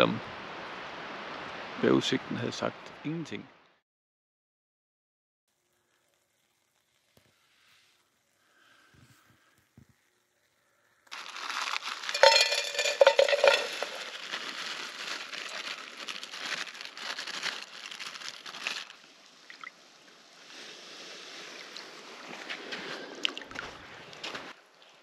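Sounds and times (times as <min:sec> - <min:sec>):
plastic bag crinkling: 0:11.1 - 0:19.1.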